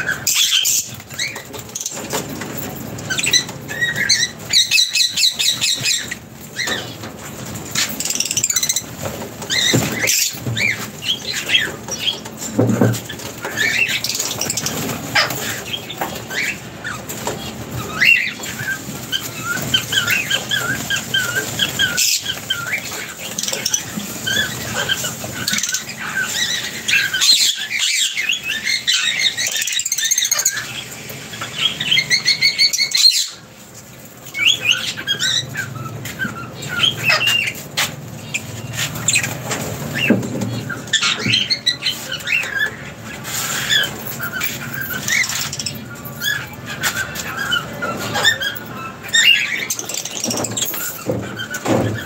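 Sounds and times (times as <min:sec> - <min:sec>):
lovebirds chirping and squeaking: 0:00.0 - 0:52.0.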